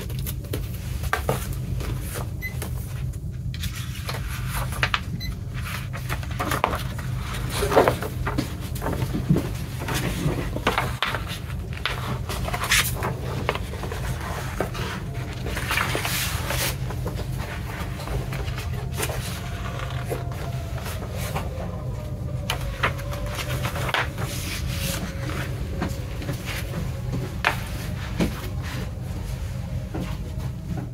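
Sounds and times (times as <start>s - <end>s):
paper rustling: 0.0s - 29.5s
low hum: 0.0s - 30.9s.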